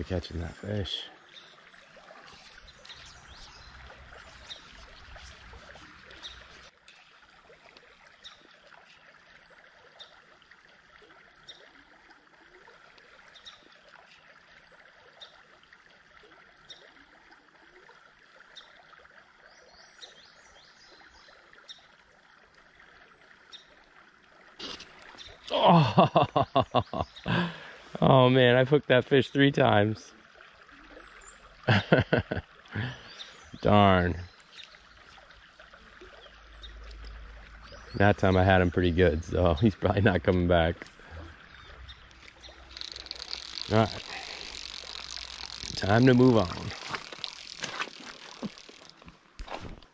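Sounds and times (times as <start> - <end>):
creek water flowing: 0.0 - 49.9
small high ticks: 41.9 - 49.2.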